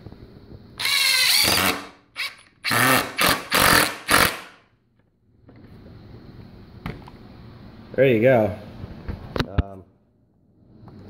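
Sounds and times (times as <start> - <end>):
impact driver bursts: 0.8 - 4.6.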